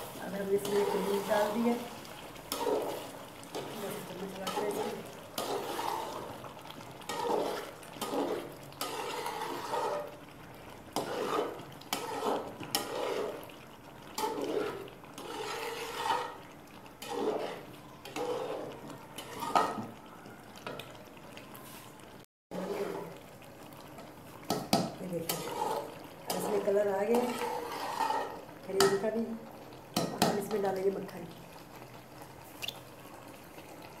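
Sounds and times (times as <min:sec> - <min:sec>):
spoon stirring gravy in pot: 0:02.0 - 0:20.0, 0:22.6 - 0:29.0.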